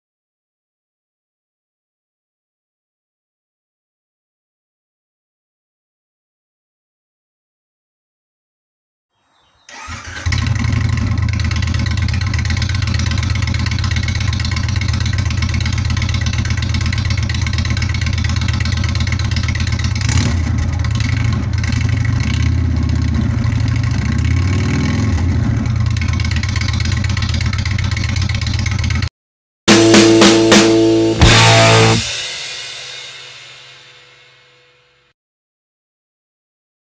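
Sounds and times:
motorcycle engine starting and idling: 9.7s - 29.1s, 29.7s - 32.4s.

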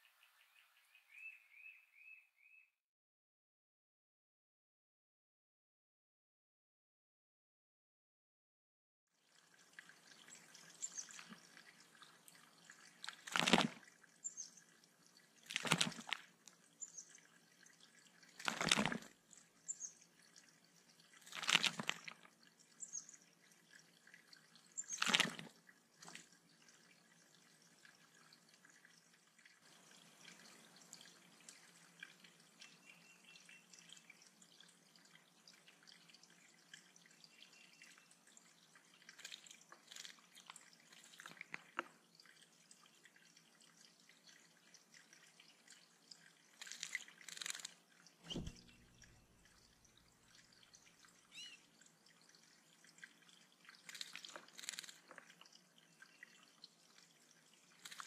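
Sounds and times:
water trickling and dripping: 9.1s - 58.0s
bird splashing in water: 9.6s - 14.0s, 15.4s - 17.2s, 18.2s - 19.2s, 21.2s - 22.3s, 24.8s - 26.4s, 39.0s - 42.4s, 46.5s - 51.6s, 53.0s - 55.5s.

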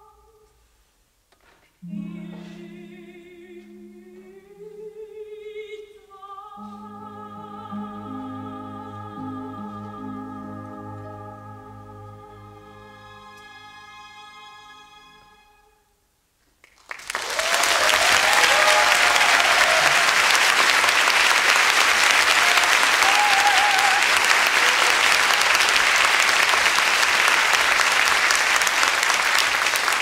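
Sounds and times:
audience applause: 16.6s - 30.0s.

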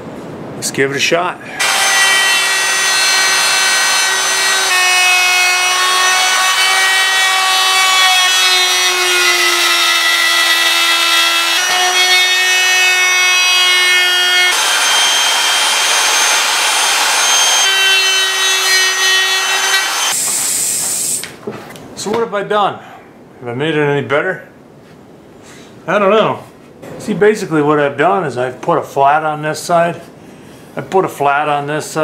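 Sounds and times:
router bit cutting wood: 1.6s - 20.5s
wood router whining: 1.6s - 21.0s.

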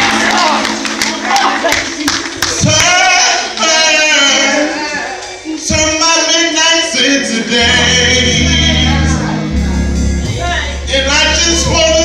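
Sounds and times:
man singing gospel into microphone: 5.6s - 12.0s.

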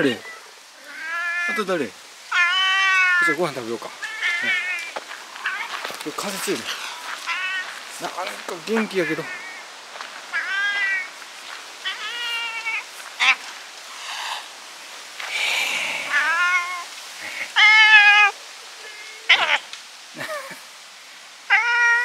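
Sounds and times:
cat meowing: 0.2s - 1.7s, 2.3s - 3.4s, 4.0s - 5.9s, 7.0s - 7.8s, 9.0s - 9.7s, 10.3s - 11.1s, 11.8s - 13.4s, 15.8s - 16.9s, 17.6s - 19.7s, 21.5s - 22.0s.

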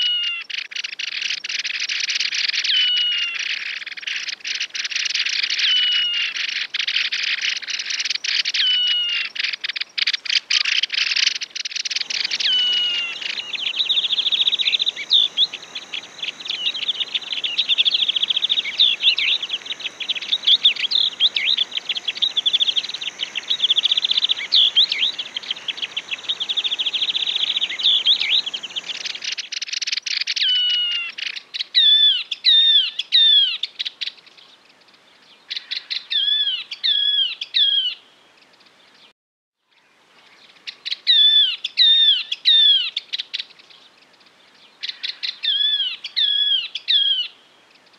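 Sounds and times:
bird trill: 0.0s - 31.1s
hissy background: 10.6s - 29.5s
bird singing chattering notes: 10.9s - 29.4s
bird whistles: 11.7s - 29.4s.

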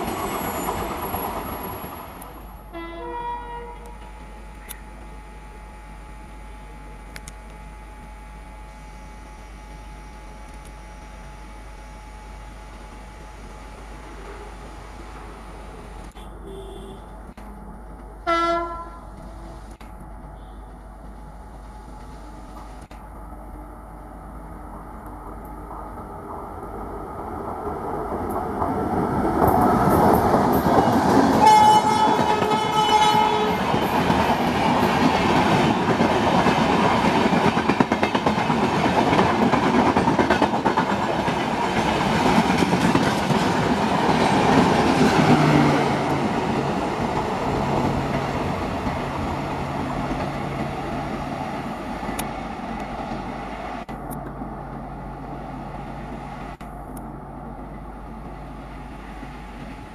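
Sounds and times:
train wheels clickety-clack: 0.0s - 2.6s, 27.4s - 53.3s
train horn: 2.7s - 4.0s, 16.1s - 17.2s, 18.2s - 19.2s, 20.4s - 20.8s, 31.3s - 34.0s.

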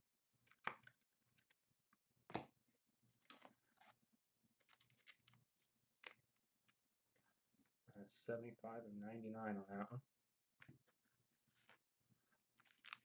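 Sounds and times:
trading cards rustling into sleeves: 3.1s - 7.2s, 10.6s - 13.0s.

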